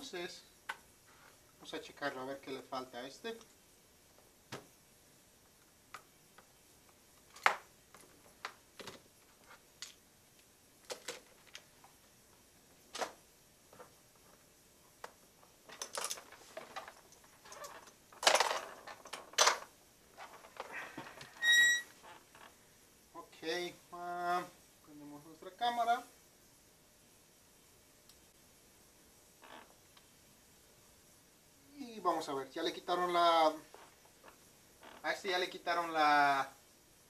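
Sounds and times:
scraping and rustling: 15.6 - 22.6.

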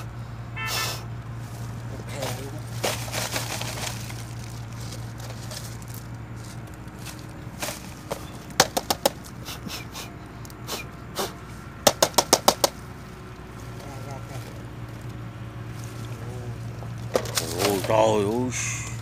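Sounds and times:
sharp knocks on plastic tube: 8.6 - 9.2, 11.8 - 12.8.

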